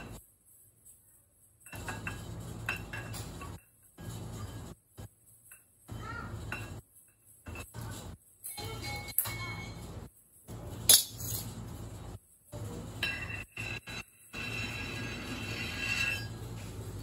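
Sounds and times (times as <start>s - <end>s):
metal cake turntable turning: 12.5s - 17.0s
metal spatula scraping buttercream: 13.0s - 16.4s.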